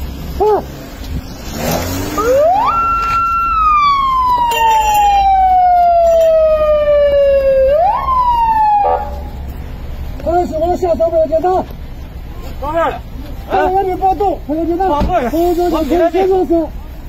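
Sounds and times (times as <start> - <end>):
siren wail: 2.1 - 9.4.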